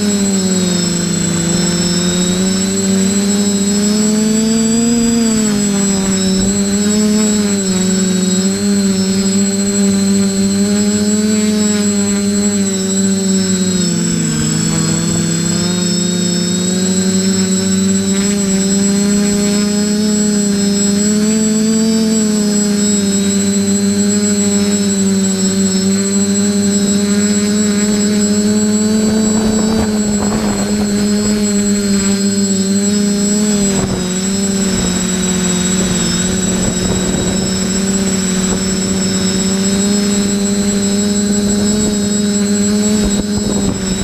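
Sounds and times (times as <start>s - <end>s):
drone motors humming: 0.0s - 44.0s
thin high-pitched whine: 0.0s - 44.0s.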